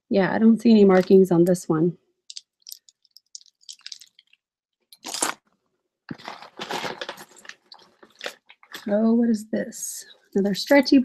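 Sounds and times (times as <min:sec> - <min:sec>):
jewelry clicking and rattling: 0:02.3 - 0:05.4.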